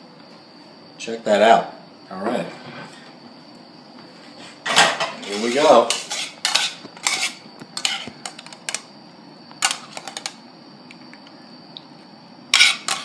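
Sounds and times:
faint high hum: 0.0 - 13.0
metal utensil scraping a skillet: 4.7 - 8.1, 12.5 - 13.0.

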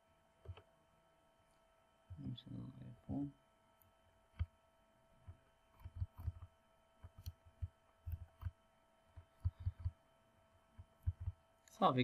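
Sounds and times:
faint steady hum: 0.0 - 12.0
computer mouse clicks and thuds: 0.4 - 0.7, 4.3 - 4.6, 5.2 - 10.0, 10.8 - 11.4.

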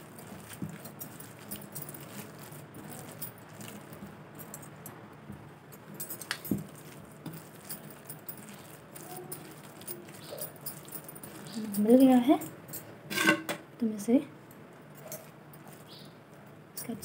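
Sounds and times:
bangles jingling: 0.0 - 4.9, 5.7 - 12.9, 14.9 - 16.2, 16.8 - 17.0
hand kneading wet mixture: 0.0 - 12.7.

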